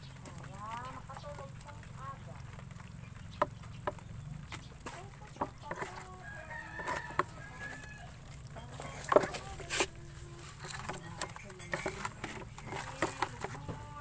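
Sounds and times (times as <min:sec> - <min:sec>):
seafood rattling in plastic basin: 0:00.0 - 0:14.0
rooster crowing: 0:05.7 - 0:09.6.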